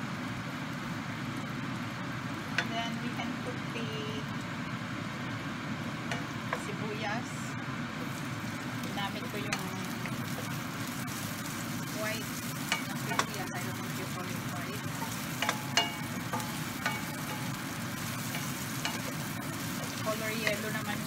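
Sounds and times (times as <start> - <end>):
onions sizzling in oil: 0.0 - 21.0
steady low hum: 0.0 - 21.0
wooden spatula knocking pan: 14.8 - 17.6.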